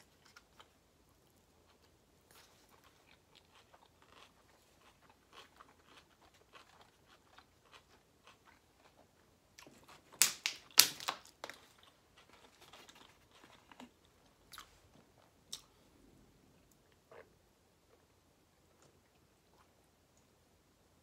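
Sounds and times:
person chewing with mouth clicks: 1.7s - 9.8s.

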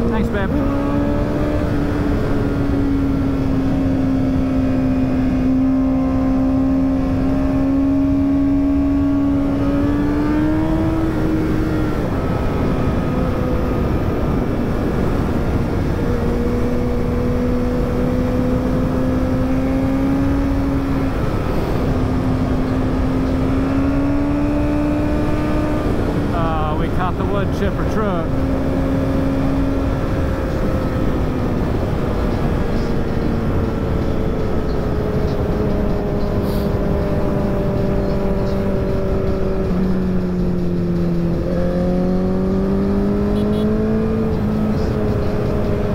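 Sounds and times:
motorcycle engine at high revs: 0.0s - 45.9s.

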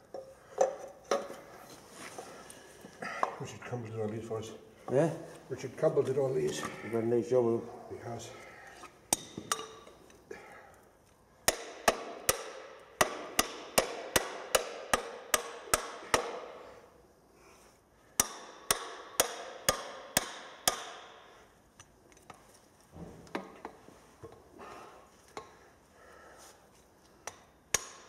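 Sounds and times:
hammer striking metal tube: 9.1s - 9.9s, 11.5s - 16.5s, 18.2s - 21.3s, 27.3s - 28.0s.

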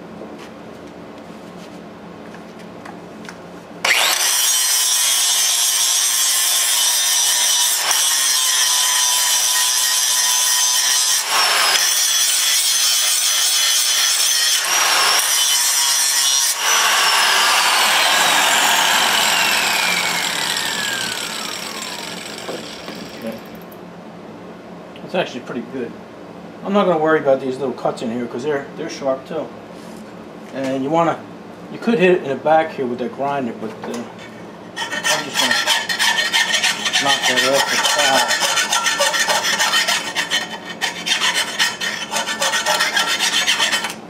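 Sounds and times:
angle grinder grinding metal: 3.8s - 23.6s, 34.8s - 44.0s.

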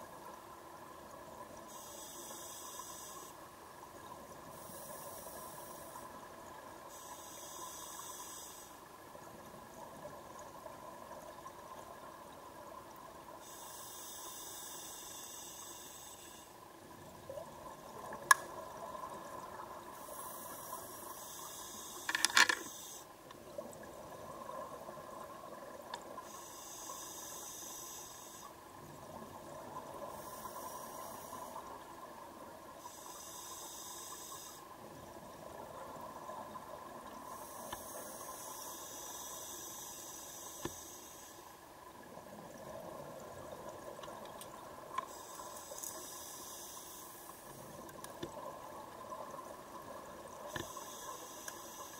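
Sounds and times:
regulator hiss: 1.7s - 3.5s, 4.4s - 8.9s, 13.3s - 16.6s, 19.5s - 23.2s, 26.2s - 28.6s, 32.7s - 34.8s, 37.3s - 41.6s, 45.1s - 47.7s, 50.4s - 51.9s.

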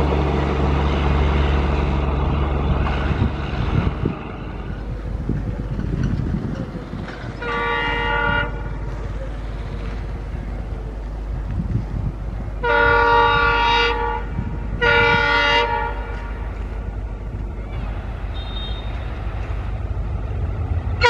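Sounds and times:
low rumble of passing train: 0.0s - 21.0s
diesel locomotive horn blast: 7.3s - 8.9s, 12.6s - 16.6s, 18.2s - 19.2s.

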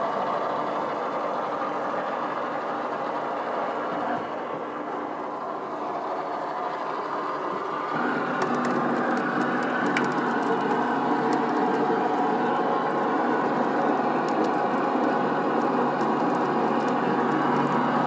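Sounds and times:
threading machine droning: 4.8s - 18.0s.

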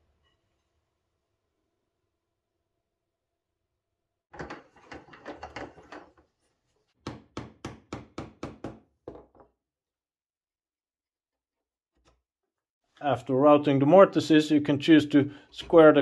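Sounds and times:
knocks and scraping: 4.4s - 7.0s.

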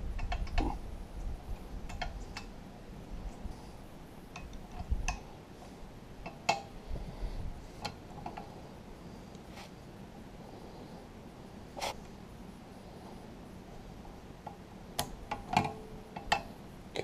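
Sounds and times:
low steady hum: 0.0s - 17.0s
tools tapping on metal engine: 15.3s - 16.5s.

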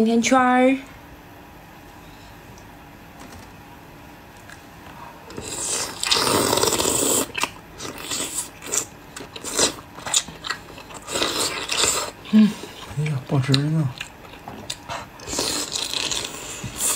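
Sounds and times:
wet slurp: 5.3s - 10.2s.

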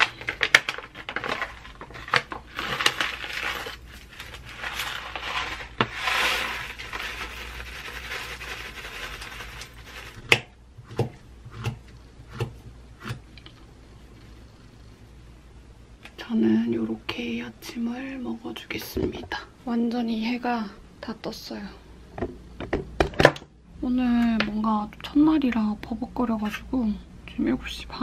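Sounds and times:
granola poured from plastic bag: 0.0s - 10.3s
plastic bag rustling: 0.0s - 10.4s.

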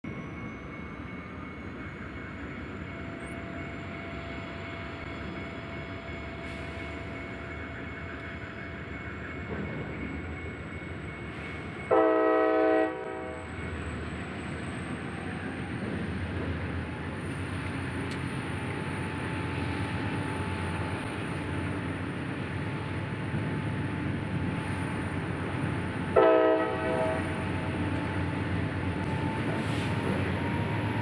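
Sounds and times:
freight train rumble: 0.0s - 31.0s
locomotive air horn blast: 11.9s - 13.4s, 26.1s - 27.4s.

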